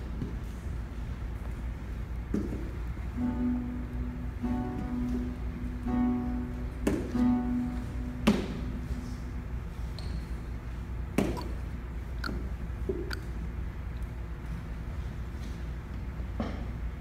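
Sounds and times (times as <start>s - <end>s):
guitar notes plucked slowly: 3.2s - 9.4s.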